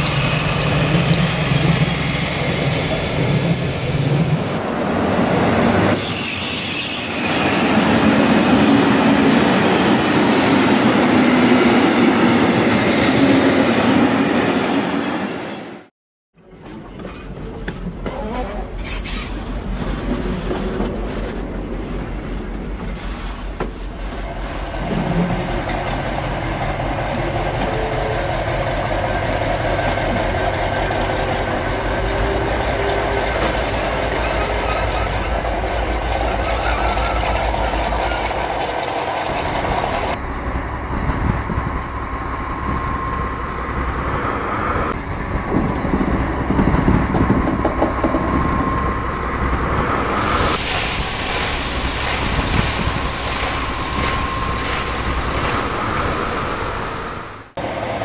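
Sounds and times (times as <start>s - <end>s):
high hiss: 49.7s - 57.2s.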